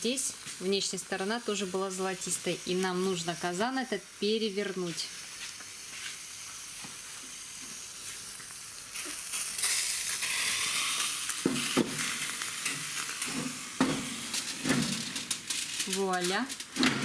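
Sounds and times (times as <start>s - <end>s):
hot pot sizzling: 0.0s - 17.0s.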